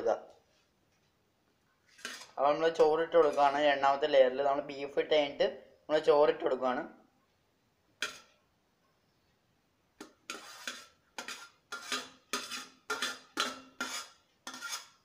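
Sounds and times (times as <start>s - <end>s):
metal spoon scraping plate and pot: 1.9s - 4.0s, 10.0s - 15.0s.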